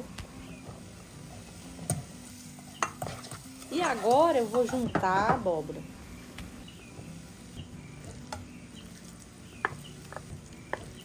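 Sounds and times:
soft sizzle from pan: 0.0s - 11.0s
spoon tapping plate and pan: 1.8s - 5.5s, 8.0s - 8.5s, 9.6s - 11.0s.

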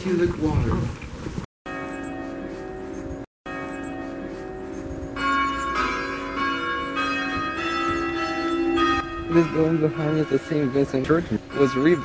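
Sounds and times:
church bells ringing: 1.7s - 12.0s.

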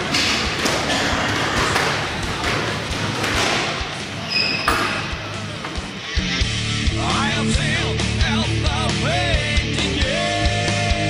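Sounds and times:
footsteps on court floor: 0.0s - 6.0s
shoe squeak: 4.1s - 5.4s.

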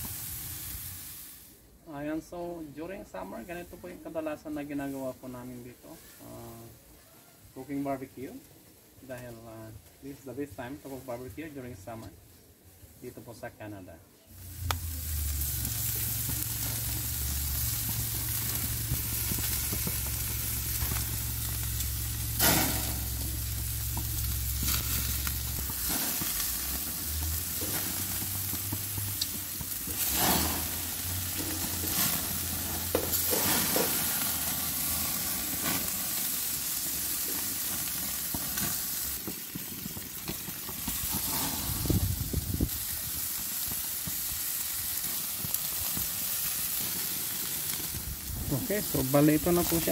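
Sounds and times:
steaks sizzling on a grill: 0.0s - 1.6s, 14.3s - 49.9s
low hum: 14.4s - 25.8s.

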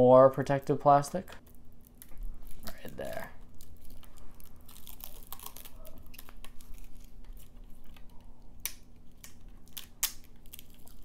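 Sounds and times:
plastic film peeling crackle: 1.4s - 11.0s.

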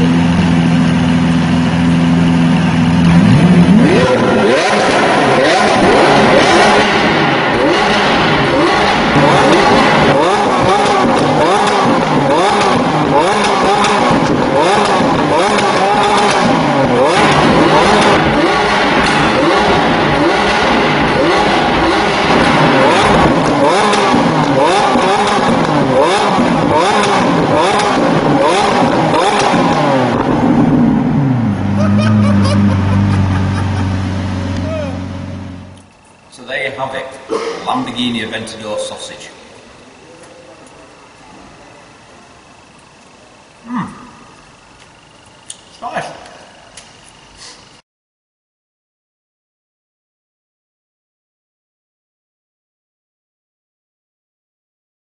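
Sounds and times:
car engine idling and revving: 0.0s - 36.3s
exhaust backfire pops: 4.8s - 30.9s.

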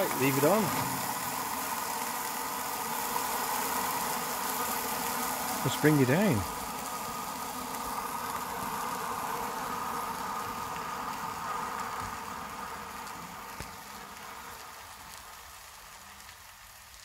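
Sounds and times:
pressure stove burner rushing: 0.0s - 9.2s.

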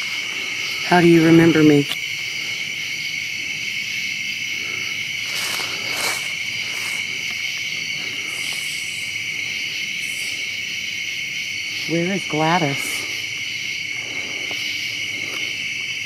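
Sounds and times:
crickets chirping: 0.0s - 16.0s
faint rustles: 4.5s - 10.6s.

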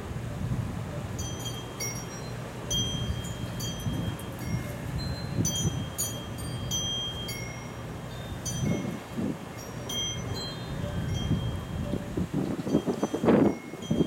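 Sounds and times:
wind rumbling on microphone: 0.0s - 2.0s, 2.6s - 14.0s
wind chimes ringing: 1.1s - 14.0s.

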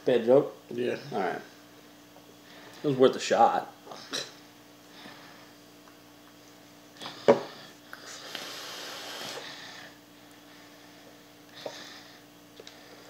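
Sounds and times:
e-cigarette airy hiss: 8.0s - 9.5s.

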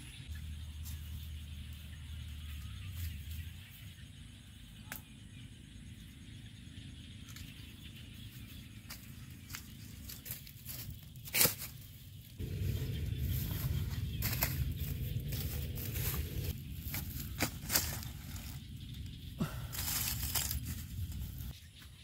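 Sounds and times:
footsteps on grassy path: 8.8s - 18.8s, 19.4s - 21.6s.

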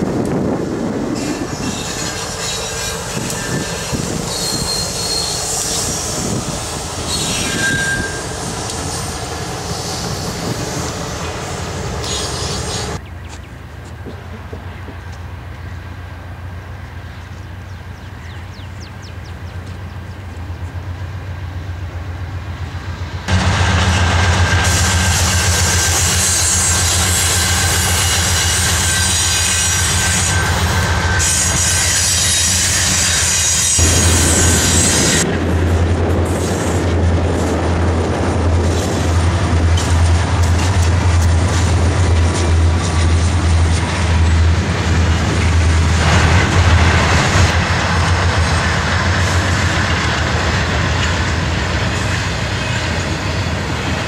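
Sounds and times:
diesel locomotive engine drone: 0.0s - 54.0s
freight cars rumbling: 0.0s - 54.0s
wheels clacking over rail joints: 23.3s - 54.0s.

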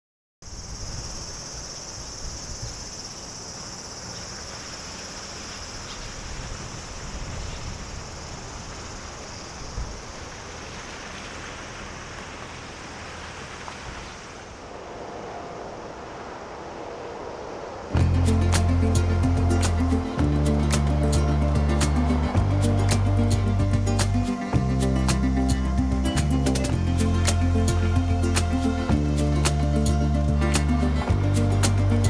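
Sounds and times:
insect chorus trilling: 0.4s - 13.2s, 14.0s - 32.0s
low outdoor rumble: 7.8s - 32.0s.

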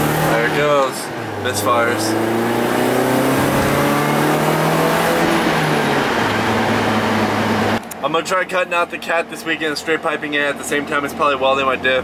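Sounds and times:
misfiring car engine under throttle: 0.0s - 7.9s.

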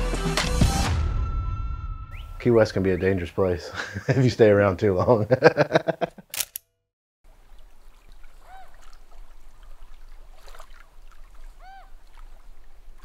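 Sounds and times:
water washing: 7.3s - 13.0s
short pitched squawks: 11.6s - 11.9s.

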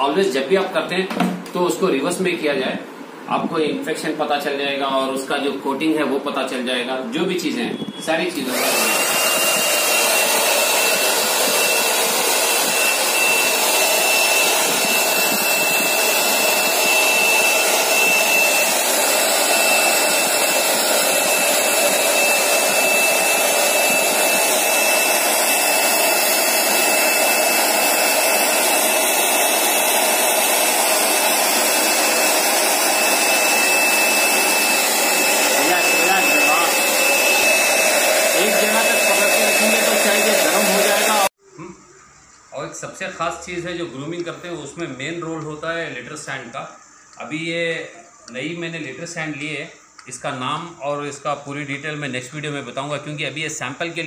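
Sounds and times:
hair dryer running: 8.3s - 41.4s.

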